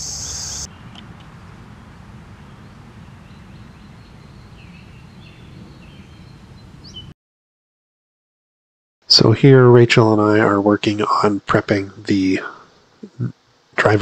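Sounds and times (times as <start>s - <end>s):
crickets trilling: 0.0s - 0.8s
faint bird chirps: 0.0s - 1.0s.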